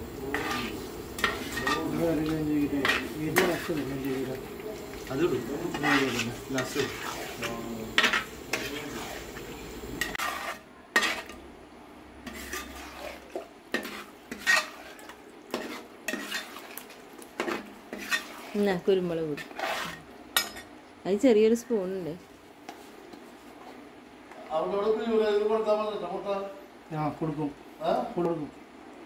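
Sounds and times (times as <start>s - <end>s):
spoon scraping in a cooking pot: 0.3s - 2.0s, 2.8s - 3.8s, 5.6s - 9.4s, 10.0s - 11.4s, 12.2s - 18.7s, 19.3s - 20.6s.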